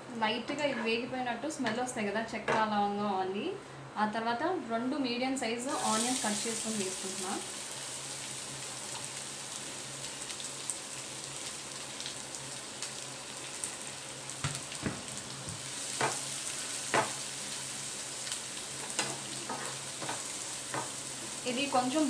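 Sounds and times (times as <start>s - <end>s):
onions sizzling in oil: 5.7s - 22.0s.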